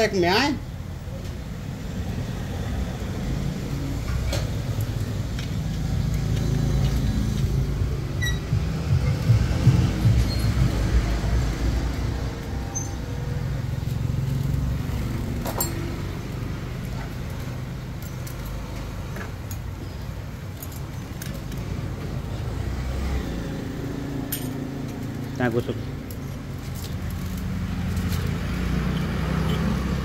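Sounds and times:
metallic clinks of clutch plates: 15.4s - 15.9s.

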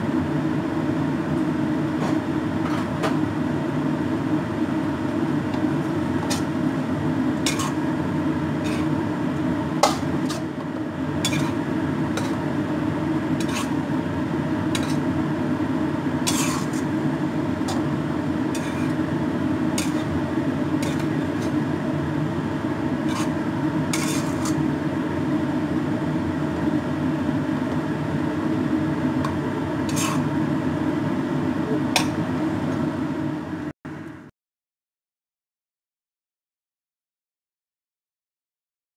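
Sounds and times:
metal spatula scraping a wok: 6.2s - 6.5s, 7.4s - 7.9s, 8.6s - 9.0s, 9.8s - 10.6s, 11.2s - 12.4s, 13.4s - 13.9s, 14.7s - 15.2s, 16.2s - 17.0s, 18.5s - 19.0s, 19.8s - 20.2s, 20.8s - 21.6s, 23.0s - 24.7s, 29.8s - 30.3s.

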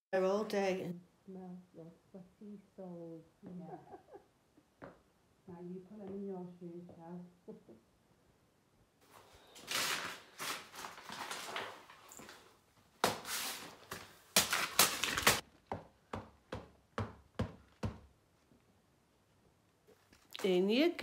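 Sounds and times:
paper being crumpled: 9.6s - 12.1s, 13.2s - 15.4s.

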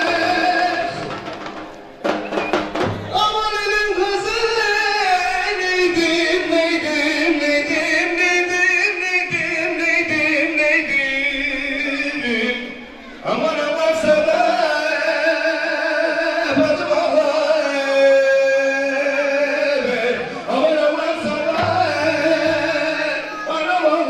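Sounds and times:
sharp drum strokes: 0.0s - 4.9s
folk music with singing: 0.0s - 24.0s.

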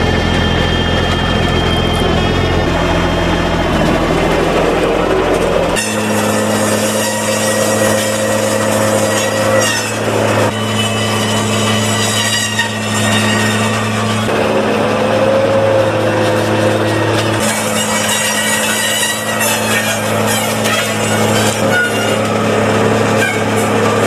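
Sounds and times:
circular saw cutting branches: 0.0s - 24.0s
tractor engine under load: 0.0s - 24.0s.

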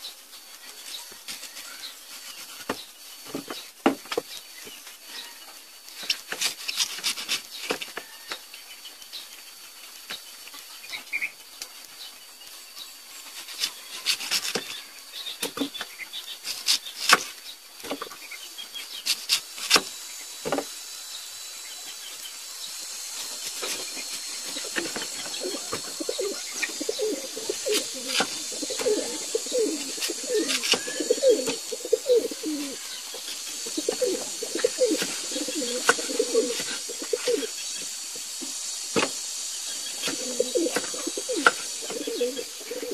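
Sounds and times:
bird cooing: 24.4s - 32.9s, 33.5s - 37.5s, 40.0s - 42.9s.

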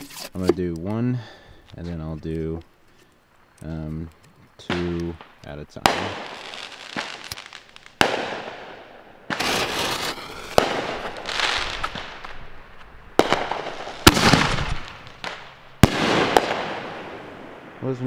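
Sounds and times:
firework shell bursting: 5.2s - 12.4s.

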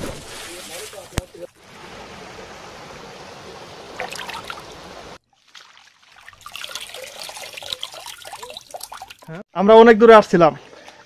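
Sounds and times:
water splashing: 0.0s - 9.4s
stream water running over rock: 0.2s - 9.4s.

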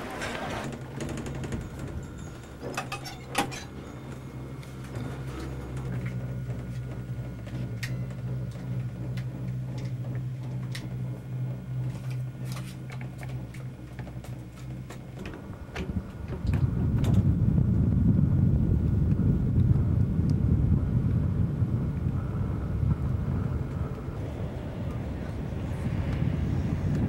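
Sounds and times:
gondola low hum: 0.0s - 27.0s
light clicks and creaks: 0.2s - 11.2s
rough low rumble: 0.6s - 27.0s.

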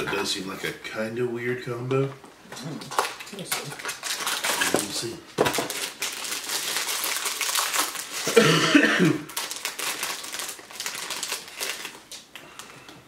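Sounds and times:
plastic snack bag crinkling: 2.8s - 8.4s, 9.2s - 12.8s.

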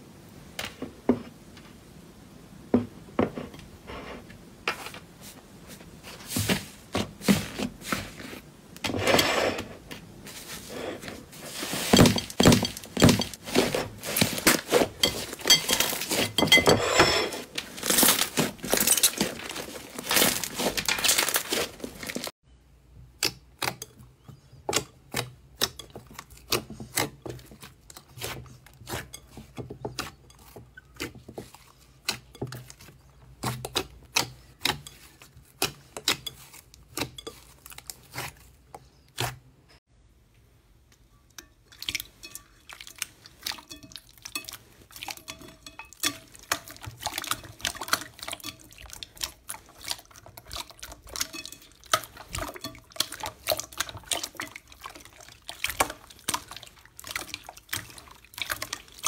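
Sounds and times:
slime squelching: 10.3s - 16.6s, 17.4s - 22.3s, 24.7s - 39.5s, 41.7s - 59.0s.

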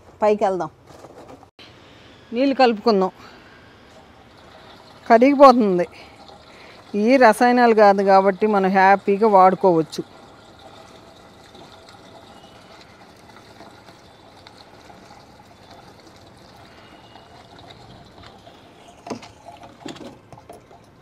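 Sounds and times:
water swishing in bucket: 2.6s - 21.0s.

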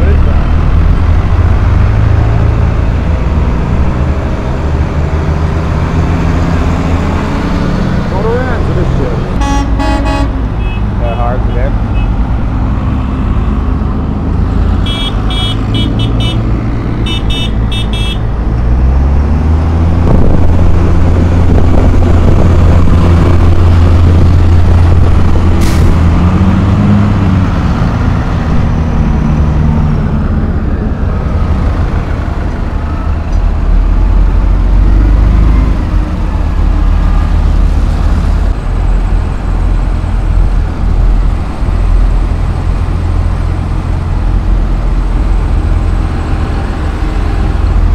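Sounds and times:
tractor diesel engines droning: 0.0s - 47.9s
horn tooting: 9.4s - 11.3s, 14.8s - 16.4s, 17.0s - 18.2s.

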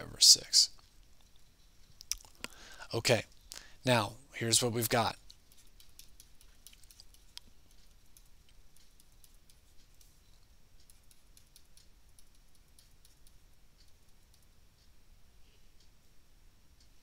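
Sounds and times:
stylus tapping on a screen: 5.2s - 14.6s.

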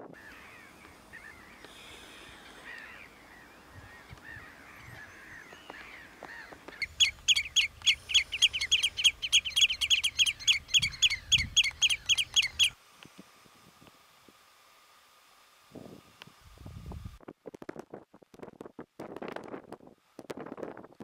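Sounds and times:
faint bird calls: 0.1s - 12.8s
bird alarm calls: 0.2s - 12.8s.

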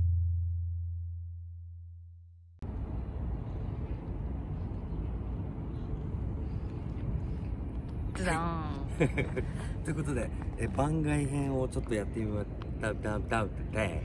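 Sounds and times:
low humming tone: 0.0s - 7.5s
city ambience rumble: 2.6s - 14.0s.

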